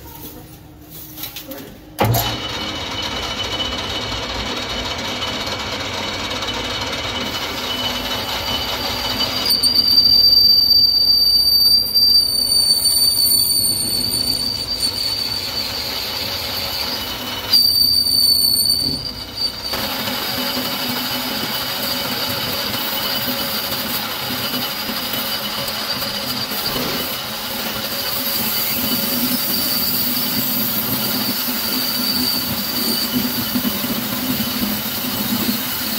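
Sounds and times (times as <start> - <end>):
lathe running: 2.2 - 10.2, 13.8 - 35.9
lathe tool squealing on steel: 7.0 - 35.9.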